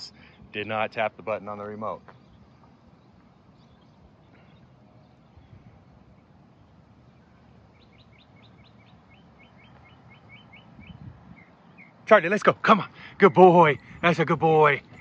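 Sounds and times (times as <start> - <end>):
faint outdoor background noise: 0.0 - 15.0
small bird singing: 0.1 - 15.0.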